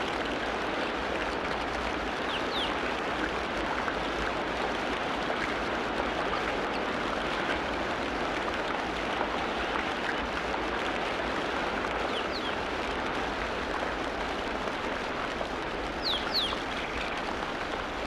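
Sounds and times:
running water rushing: 0:00.0 - 0:18.0.

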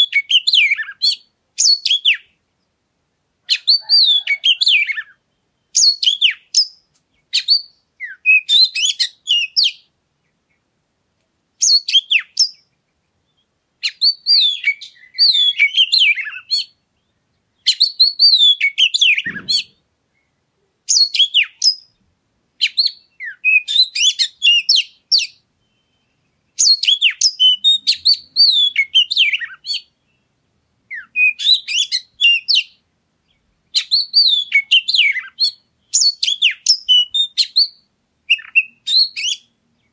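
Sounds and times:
bird singing whistles and chirps: 0:00.0 - 0:02.4, 0:03.5 - 0:09.9, 0:11.6 - 0:22.0, 0:22.6 - 0:30.3, 0:30.9 - 0:39.6.

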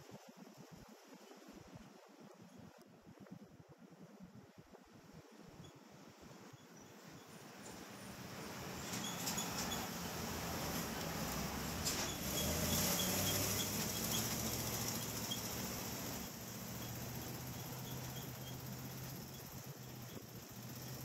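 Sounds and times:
car engine and road hum: 0:07.0 - 0:21.0.

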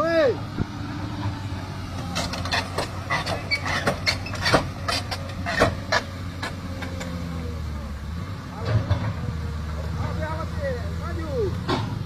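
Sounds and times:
engine running: 0:00.0 - 0:12.0
sharp clicks and knocks: 0:02.0 - 0:07.2.

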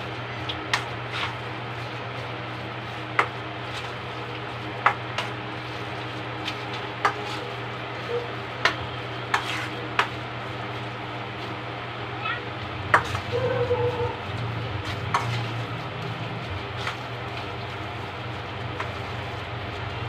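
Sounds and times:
steady low hum: 0:00.0 - 0:20.0
spoon stirring wet mixture: 0:00.1 - 0:11.6, 0:12.5 - 0:20.0.

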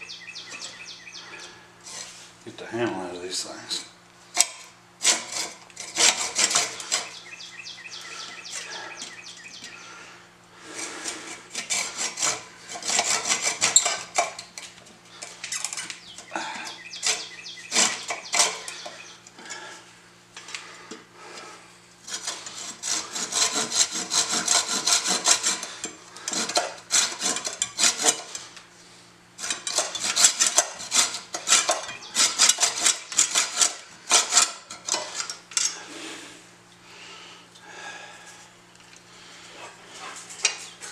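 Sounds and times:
hand saw cutting wood: 0:04.4 - 0:07.2, 0:10.6 - 0:19.7, 0:21.2 - 0:28.7, 0:29.4 - 0:36.1.

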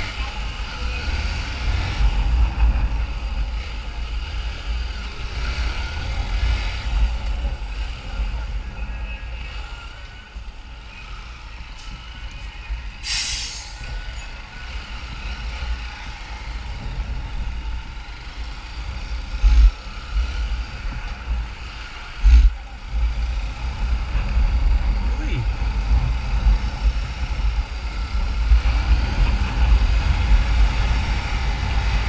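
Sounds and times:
short hiss: 0:13.0 - 0:13.8
motorcycle engine rumble: 0:13.8 - 0:32.0
wind noise: 0:18.8 - 0:21.6, 0:22.2 - 0:32.0.

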